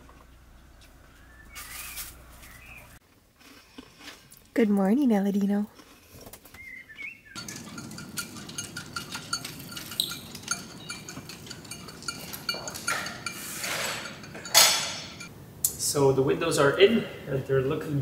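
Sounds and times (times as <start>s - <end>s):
bicycle clatter: 7.4s - 15.3s
bicycle clinking and rattling: 7.4s - 15.3s.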